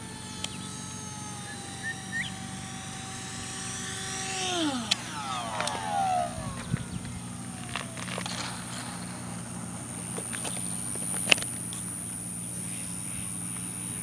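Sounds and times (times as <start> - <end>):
model jet ducted fan whine: 0.0 - 14.0
steady low hum: 0.0 - 14.0
clicks: 4.8 - 11.9.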